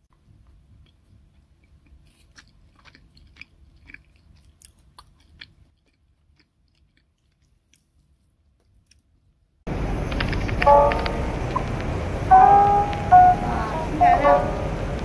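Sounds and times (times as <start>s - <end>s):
soft bun crackling: 0.1s - 11.8s
low rumble: 9.7s - 15.0s.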